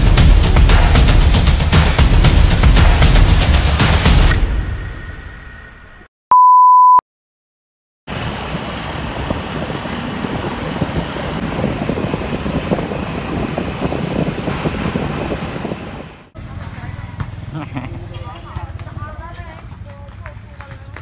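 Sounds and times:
electronic beep: 6.3 - 7.0
wind while riding: 8.1 - 21.0
motor scooter engines: 16.4 - 21.0.

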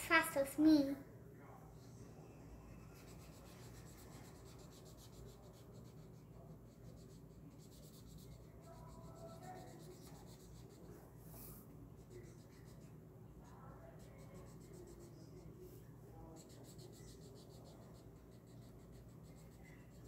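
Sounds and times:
marker scratching on paper: 2.8 - 13.0, 13.8 - 15.6, 16.2 - 20.0.

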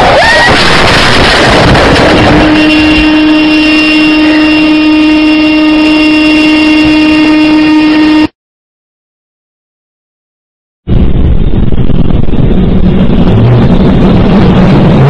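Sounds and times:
car horn steady tone: 2.0 - 8.4.

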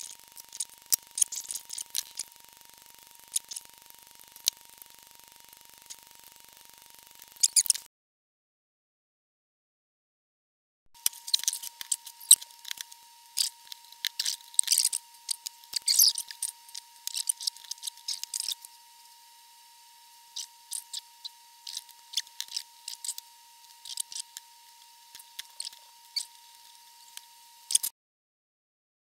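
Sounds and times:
faint steady high tone: 11.0 - 27.9.

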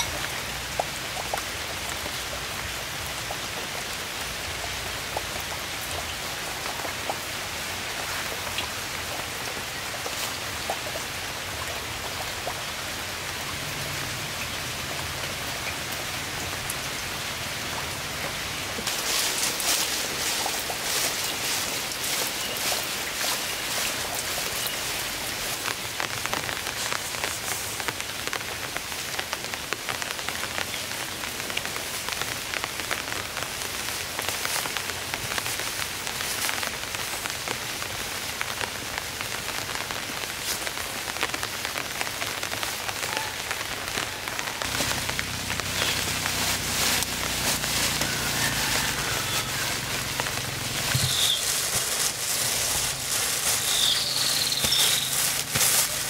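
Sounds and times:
rain falling: 0.0 - 56.0.

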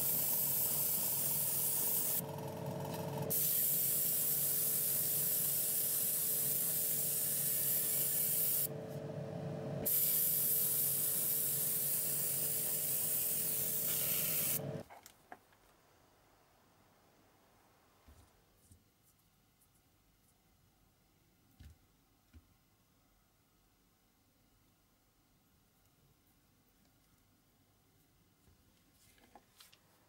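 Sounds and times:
paint spray hissing: 0.0 - 2.2, 3.3 - 8.7, 9.9 - 14.6.

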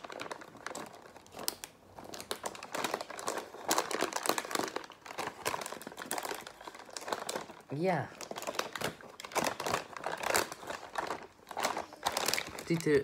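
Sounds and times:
plastic snack bag crinkling: 0.0 - 13.0.

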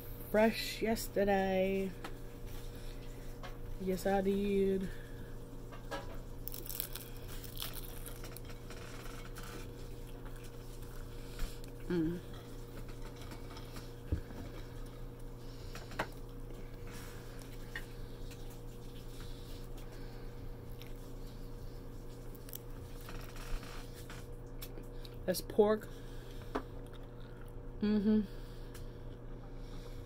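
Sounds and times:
crunching fried food: 6.3 - 11.9, 22.0 - 23.9
person humming mm: 11.8 - 12.3, 27.8 - 28.4.

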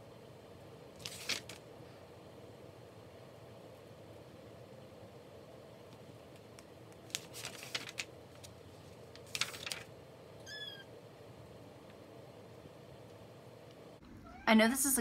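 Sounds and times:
book pages rustling: 1.0 - 1.6, 6.3 - 9.9
cat chirp: 10.4 - 10.9, 14.0 - 14.5.

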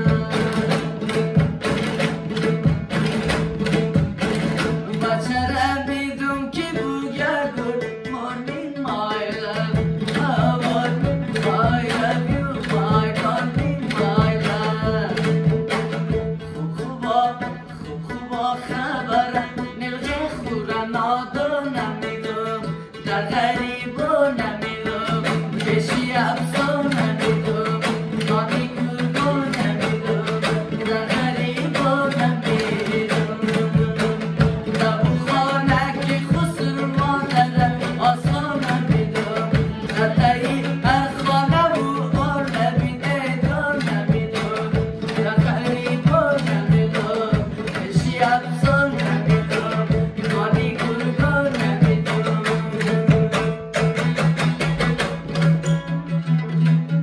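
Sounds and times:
drum strokes: 0.0 - 5.4, 24.8 - 57.0
person singing: 16.5 - 53.4.

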